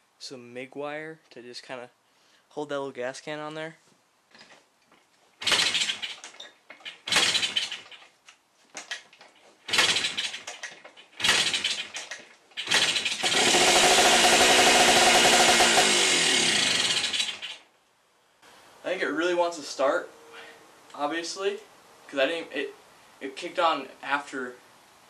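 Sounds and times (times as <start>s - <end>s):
two-stroke engine running: 5.4s - 6.2s, 7.1s - 7.8s, 9.7s - 10.5s, 11.2s - 12.0s, 12.6s - 17.6s.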